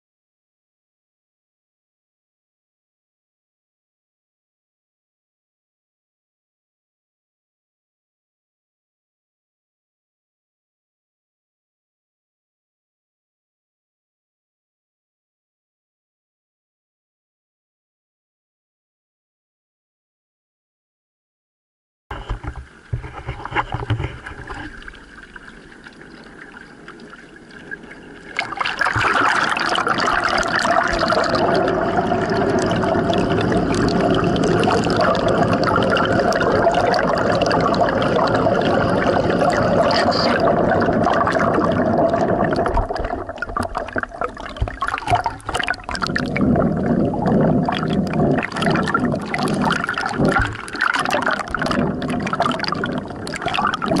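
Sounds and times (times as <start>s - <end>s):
water splashing and churning: 22.2s - 54.0s
water rushing and gurgling: 22.5s - 54.0s.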